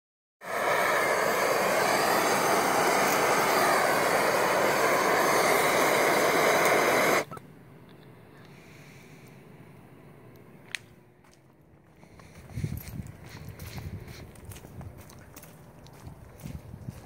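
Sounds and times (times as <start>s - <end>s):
hand torch hissing: 0.4s - 7.3s.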